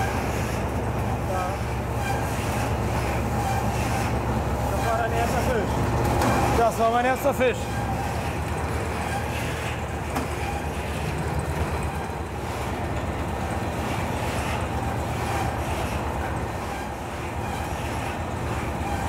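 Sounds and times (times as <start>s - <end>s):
low machinery drone: 0.0s - 19.0s.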